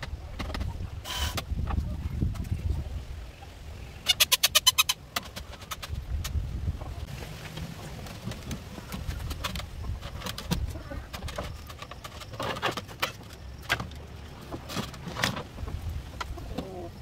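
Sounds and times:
bamboo panels clattering and knocking: 0.0s - 2.6s, 5.0s - 17.0s.

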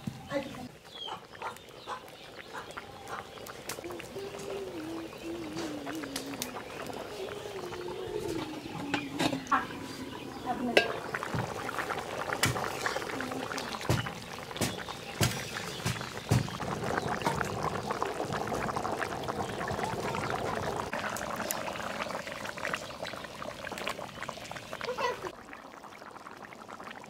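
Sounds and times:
curry bubbling and sizzling in a pan: 0.0s - 27.0s.

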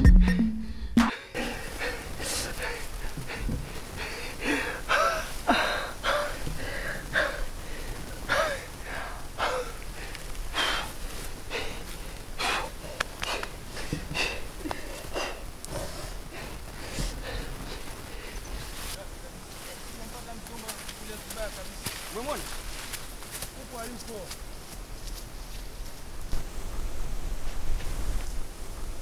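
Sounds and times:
man gasping and groaning: 8.3s - 9.8s.

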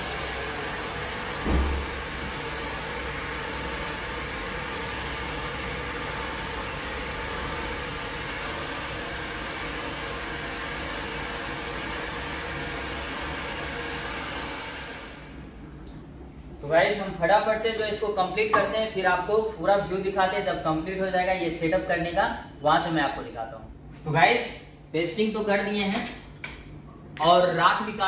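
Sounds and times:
hair dryer blowing: 0.0s - 15.5s.

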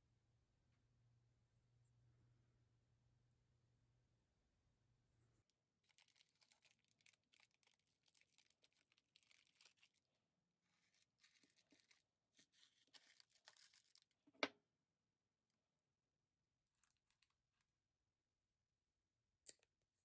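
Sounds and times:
plastic wrapper crinkling and tearing: 5.8s - 14.2s.

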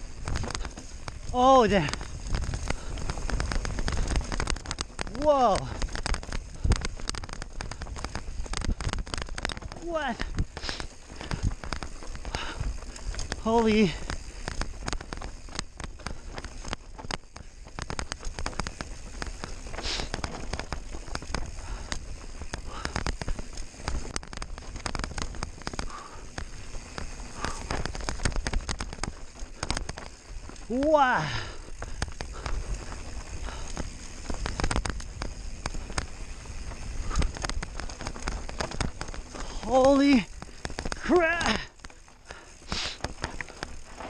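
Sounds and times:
wind rumble on microphone: 0.0s - 30.8s
mountain bike clattering over stones: 0.0s - 44.0s.

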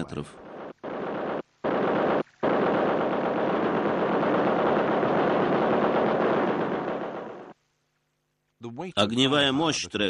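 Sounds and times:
machine gun firing burst: 0.4s - 7.5s.

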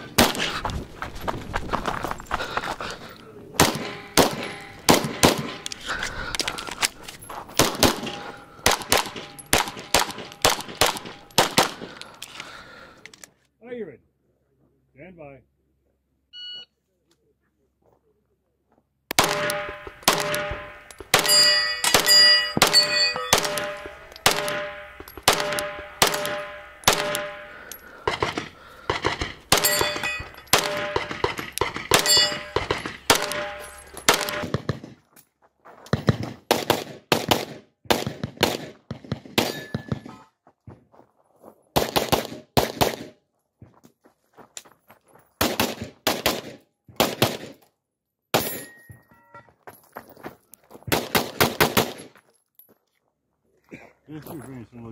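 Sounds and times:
pistol shots: 0.1s - 0.5s, 3.6s - 5.8s, 7.6s - 12.2s, 19.1s - 34.9s, 36.5s - 40.1s, 41.8s - 43.2s, 45.4s - 47.6s, 48.3s - 48.7s, 50.9s - 52.1s
metallic ringing clang: 3.8s - 4.9s, 19.4s - 27.9s, 29.5s - 34.1s, 48.5s - 49.5s.

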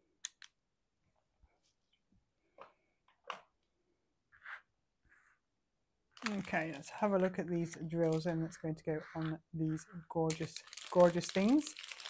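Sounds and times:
soft taps and scrapes on table: 4.3s - 5.4s.

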